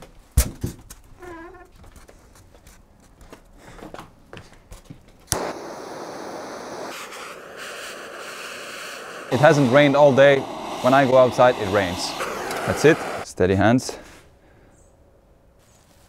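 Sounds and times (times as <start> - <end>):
butane torch hissing: 5.3 - 13.3.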